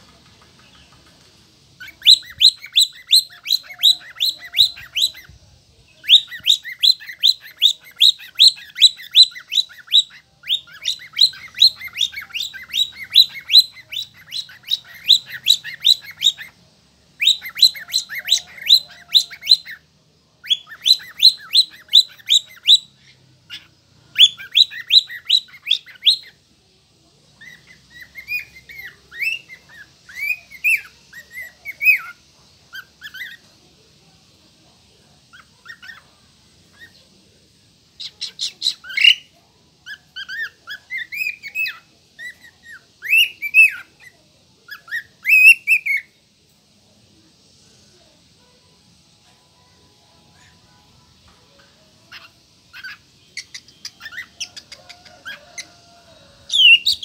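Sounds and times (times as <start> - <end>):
cockatiel chirping: 1.8 - 5.4, 6.0 - 16.6, 17.2 - 19.8, 20.4 - 26.4, 27.4 - 33.4, 35.3 - 36.1, 38.0 - 46.1, 52.1 - 55.7.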